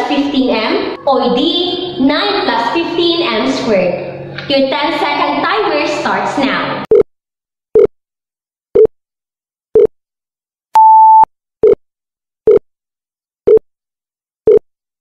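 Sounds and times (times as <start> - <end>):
longer higher beep: 10.8 - 11.8
short low beeps: 10.8 - 11.8.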